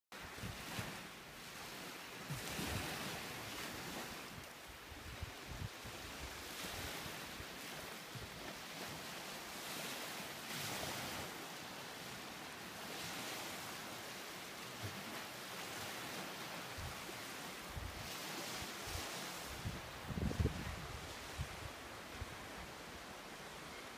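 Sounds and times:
waves washing onto pebble beach: 0.2 - 23.9
wind buffeting microphone: 4.8 - 7.3, 17.7 - 22.8.

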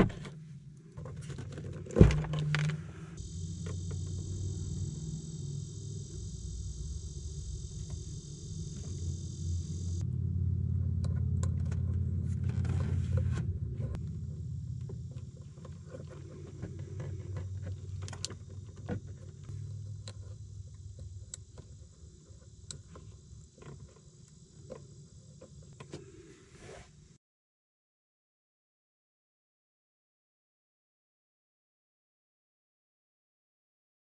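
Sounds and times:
low hum: 0.0 - 26.6.

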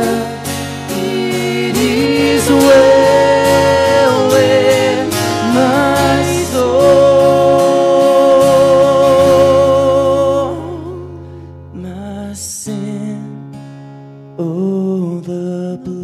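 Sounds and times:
man and woman singing hymn: 0.0 - 11.2
acoustic guitar: 0.0 - 16.0.

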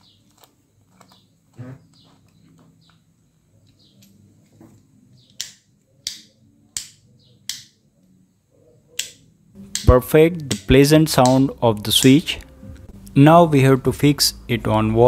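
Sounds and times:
faint handling sounds: 0.0 - 5.1.

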